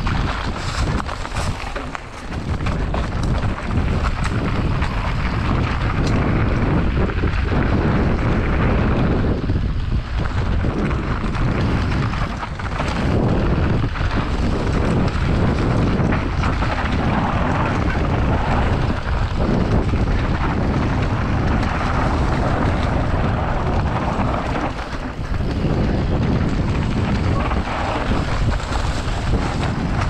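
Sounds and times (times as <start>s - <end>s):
bike clicks and rattles: 0.0s - 30.0s
tyres on loose dirt: 0.0s - 30.0s
wind noise on microphone: 0.0s - 30.0s.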